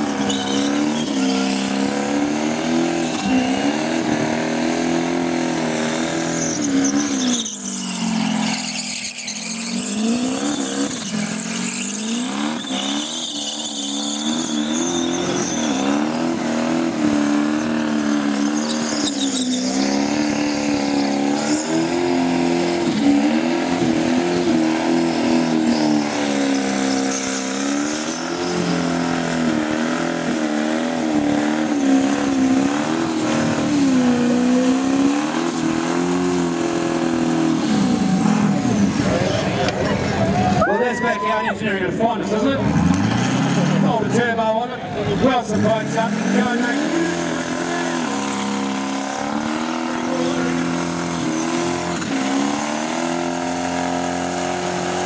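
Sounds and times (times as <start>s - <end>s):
tyres squealing: 0.0s - 5.0s, 5.9s - 29.9s
car engine revving high: 0.0s - 40.1s, 42.2s - 55.0s.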